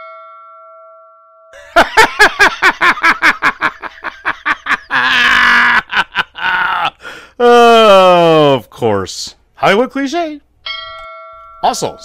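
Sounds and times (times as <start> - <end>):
chime ding: 0.0 - 1.6, 10.7 - 12.0.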